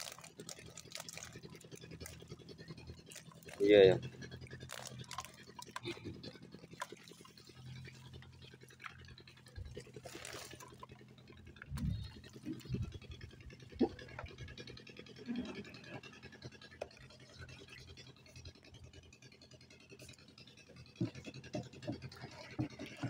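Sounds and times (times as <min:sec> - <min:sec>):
fishing gear scraping: 0:04.6 - 0:06.0, 0:09.7 - 0:10.9.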